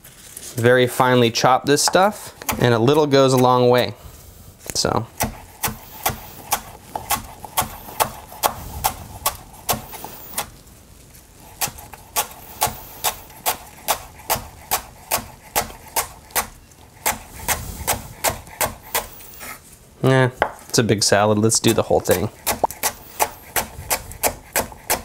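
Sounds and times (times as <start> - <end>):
knife chopping on wooden board: 5.2 - 10.5, 11.6 - 19.6, 21.7 - 25.0.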